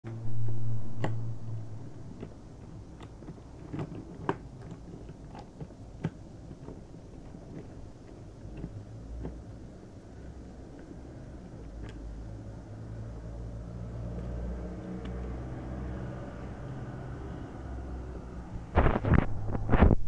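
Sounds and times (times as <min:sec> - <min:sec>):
low hum: 0:00.0 - 0:05.2
light clicks and knocks: 0:02.0 - 0:09.8.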